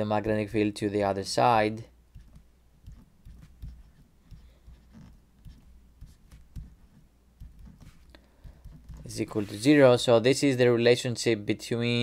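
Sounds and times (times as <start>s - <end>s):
stylus writing on tablet: 2.1s - 9.9s.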